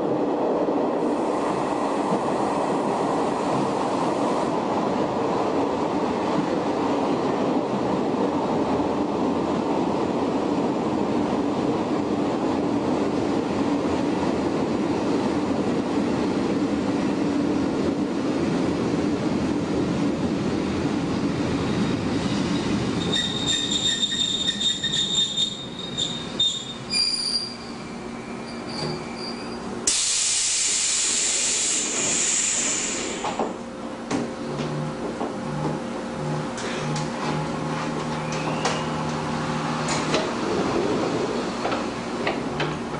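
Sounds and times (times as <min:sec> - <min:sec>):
train motor and gear noise: 0:00.0 - 0:42.9
high-pitched wheel squeals: 0:22.3 - 0:29.6, 0:38.2 - 0:39.0.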